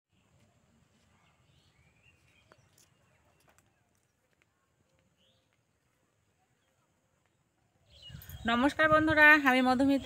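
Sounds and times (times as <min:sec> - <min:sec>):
distant bird chirps: 0:00.1 - 0:09.0.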